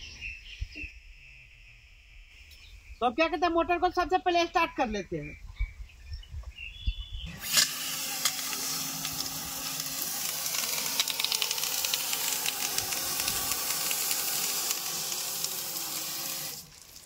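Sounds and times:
electric water pump humming: 7.3s - 17.0s
water spraying with loud hiss: 7.3s - 17.0s.

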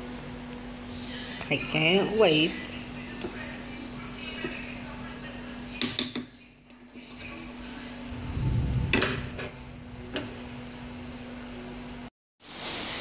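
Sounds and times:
steady low hum: 6.4s - 12.1s
dull low rumble: 8.0s - 12.1s.

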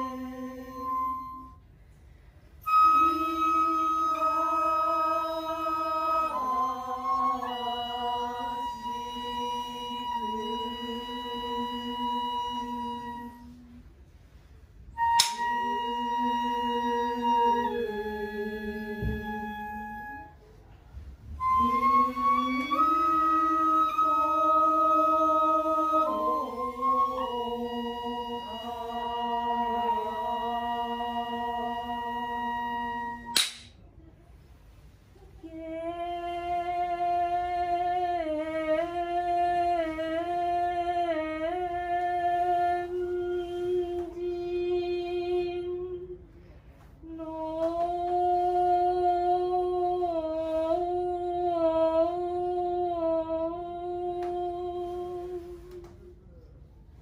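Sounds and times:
women singing in long held notes: 0.0s - 1.6s, 2.6s - 14.0s, 14.9s - 20.4s, 21.0s - 33.4s, 35.3s - 56.2s
sharp click: 15.2s - 15.4s, 33.4s - 33.8s.

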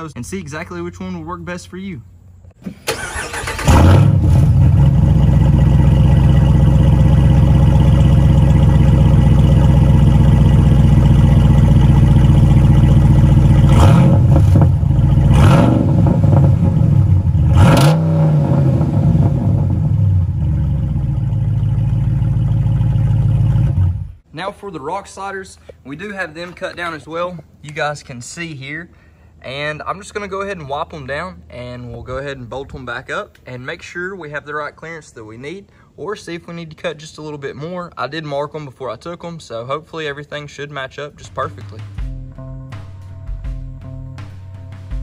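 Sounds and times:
car engine idling and revving: 3.6s - 24.2s.

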